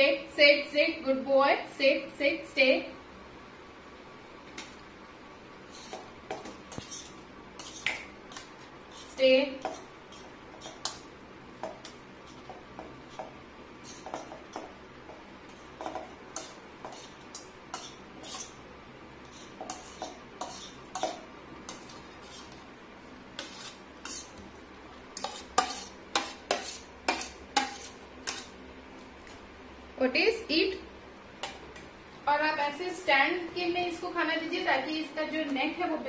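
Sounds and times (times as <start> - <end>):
metal fork scraping a plate: 16.4 - 18.6, 19.3 - 22.6, 23.4 - 24.4, 25.2 - 28.5.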